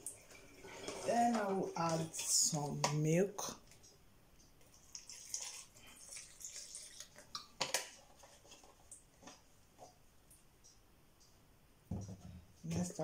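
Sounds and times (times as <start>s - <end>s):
milk pouring into blender jar: 4.7s - 7.5s.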